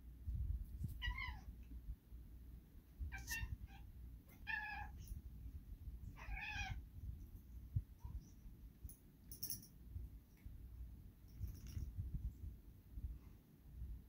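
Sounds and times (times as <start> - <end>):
cat meowing: 3.1 - 5.1, 6.2 - 6.8.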